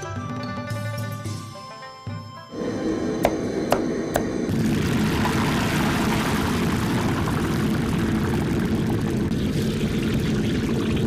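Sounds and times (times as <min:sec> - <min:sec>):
oil sizzling in a wok: 0:04.5 - 0:11.0.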